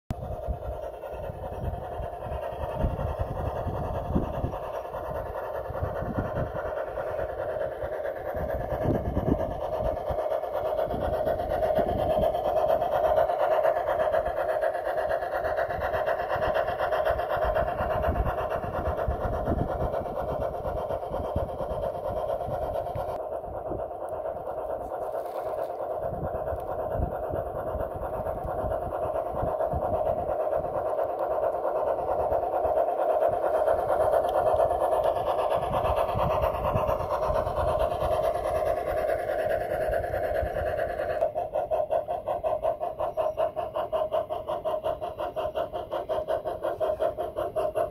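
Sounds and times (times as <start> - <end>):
model locomotive motor whirring: 0.1 - 47.9.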